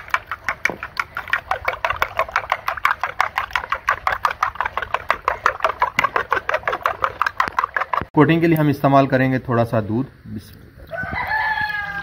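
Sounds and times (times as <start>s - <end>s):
eggs beaten by hand in bowl: 0.0s - 8.2s.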